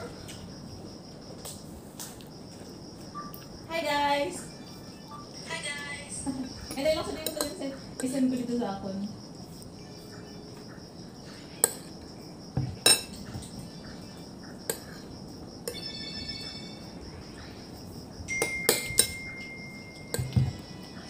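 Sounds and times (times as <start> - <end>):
metal spoon clinking on dish: 7.0 - 8.2, 12.6 - 13.4, 18.3 - 20.5.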